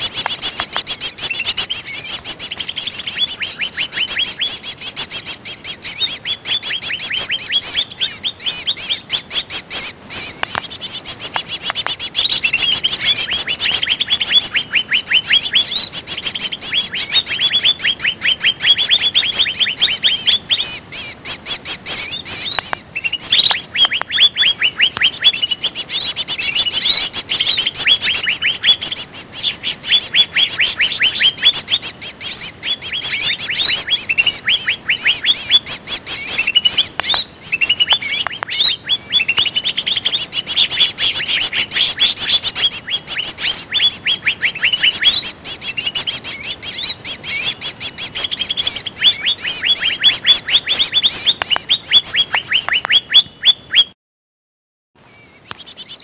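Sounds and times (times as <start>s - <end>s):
rapid high bird chirps: 0.6s - 6.1s, 7.1s - 9.2s, 55.8s - 56.0s.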